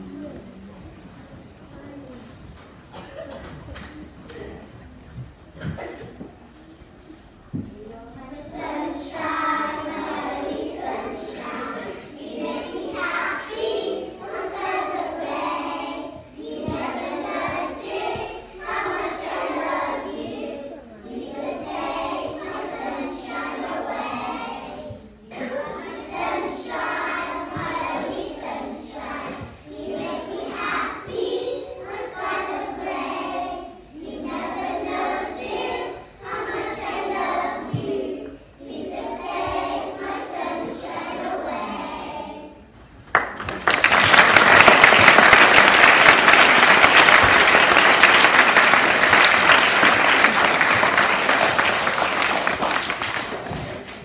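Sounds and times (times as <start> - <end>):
children singing: 8.2 - 42.8
audience applause: 43.1 - 54.0.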